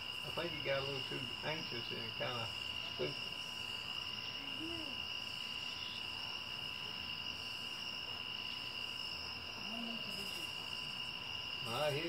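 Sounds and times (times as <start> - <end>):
crickets and night insects trilling: 0.0 - 12.0.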